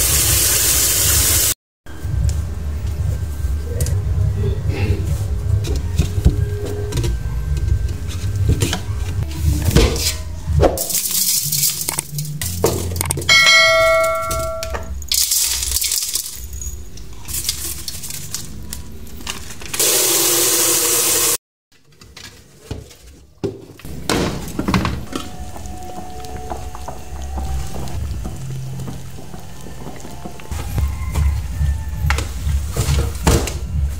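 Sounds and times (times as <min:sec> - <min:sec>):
metal cooking pot clanging: 0:12.7 - 0:14.9.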